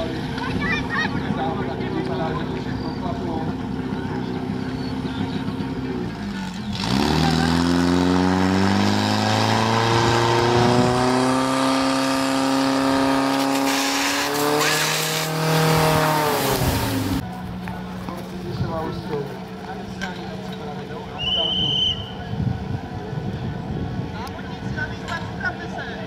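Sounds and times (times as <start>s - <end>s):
motor pump engine revving: 1.2s - 17.2s.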